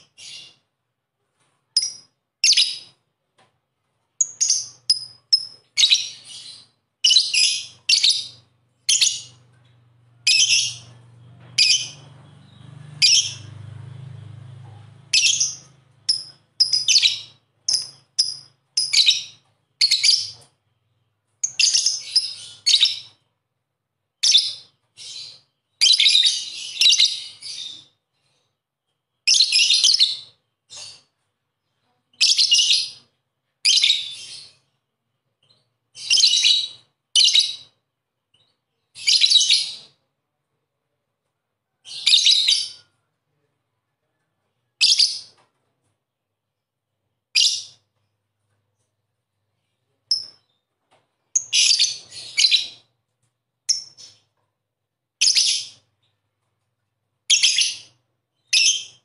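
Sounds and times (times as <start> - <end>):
faint low hum: 0.0 - 25.4.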